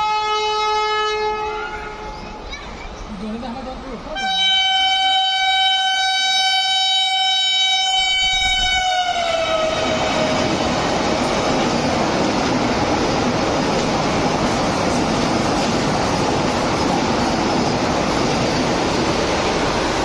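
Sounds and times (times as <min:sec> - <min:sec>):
train horn: 0:00.0 - 0:02.1, 0:04.2 - 0:10.4
train coaches rushing past: 0:05.9 - 0:20.0.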